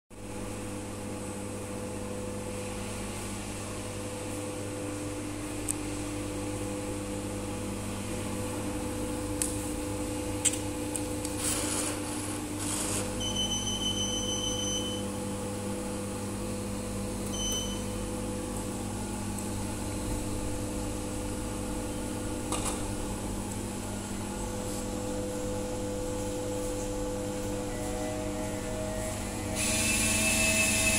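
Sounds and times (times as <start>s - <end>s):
vending machine humming: 0.1s - 30.9s
banknote acceptor whirring: 27.7s - 30.9s.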